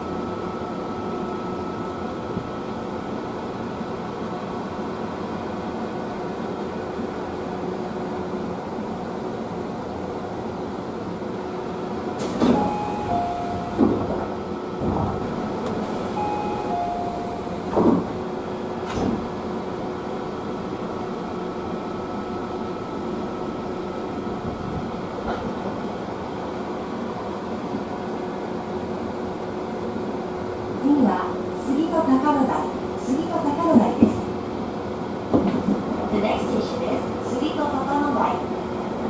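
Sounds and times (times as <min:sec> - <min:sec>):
train interior hum: 0:00.0 - 0:39.0
two-note chime: 0:16.2 - 0:17.4.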